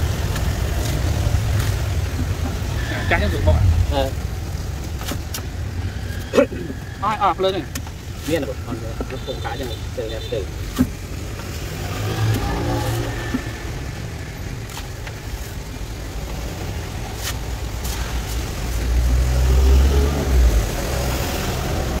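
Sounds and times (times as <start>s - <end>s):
low engine-like rumble: 0.0s - 9.3s
cleaver chopping coconut husk: 17.1s - 19.2s.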